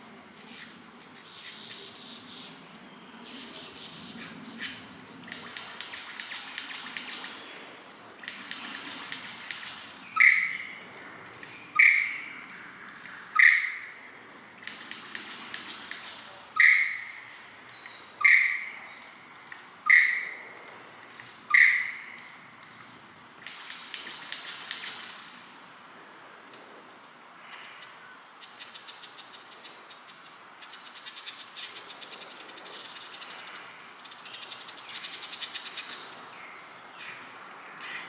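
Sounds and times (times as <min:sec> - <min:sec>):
lyrebird loud sharp notes: 0:08.2 - 0:10.7, 0:11.7 - 0:12.4, 0:13.3 - 0:14.0, 0:14.6 - 0:17.2, 0:18.2 - 0:18.8, 0:19.8 - 0:20.4, 0:21.5 - 0:22.2.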